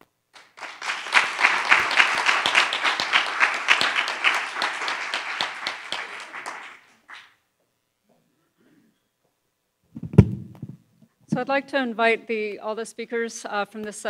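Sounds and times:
audience applauding: 0.3 - 7.4.

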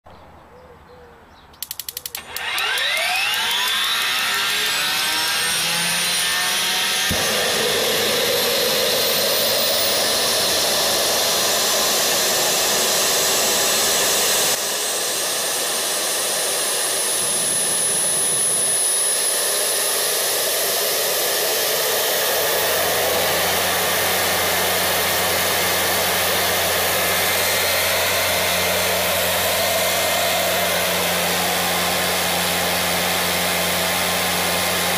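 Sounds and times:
turbine starter clicks: 1.6 - 8.6
gas turbine whine: 1.9 - 34.9.

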